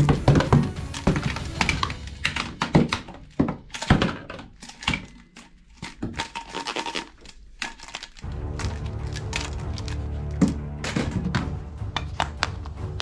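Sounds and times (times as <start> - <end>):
background music: 0.0 - 3.8, 8.2 - 13.0
plastic toy guns clattering: 0.0 - 12.5.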